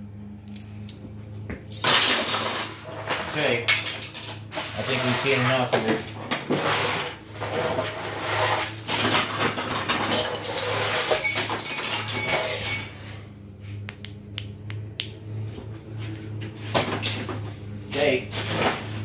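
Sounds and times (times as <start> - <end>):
steady low hum: 0.0 - 19.0
small metal parts rattling and clinking: 8.7 - 13.0.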